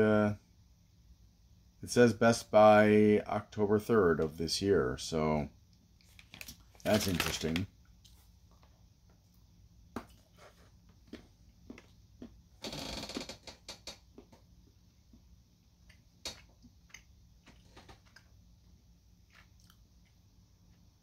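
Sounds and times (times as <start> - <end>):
chocolate crunching and chewing: 19.2 - 20.2.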